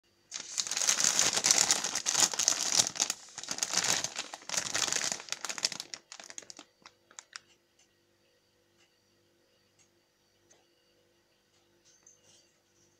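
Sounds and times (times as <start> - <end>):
plastic bag crinkling: 0.3 - 7.4.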